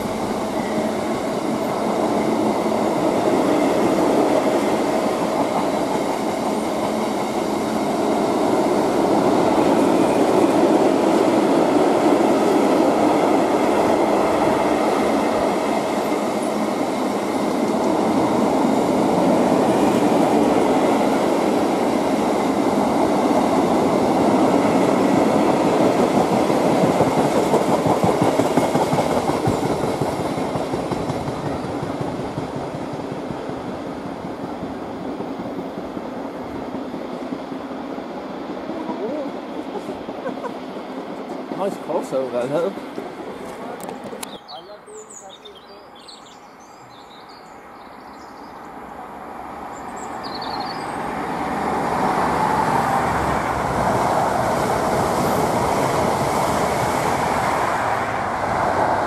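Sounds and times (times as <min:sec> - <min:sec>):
train wheels running on rails: 0:00.0 - 0:44.4, 0:48.6 - 0:59.0.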